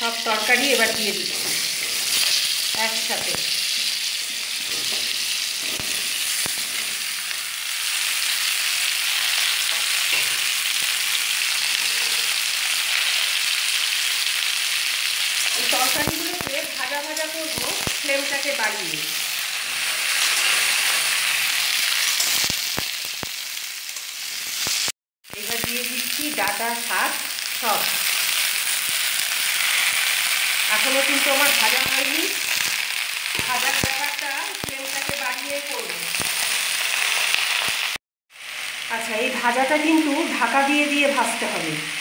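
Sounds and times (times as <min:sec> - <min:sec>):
vegetables sizzling in oil: 0:00.0 - 0:42.0.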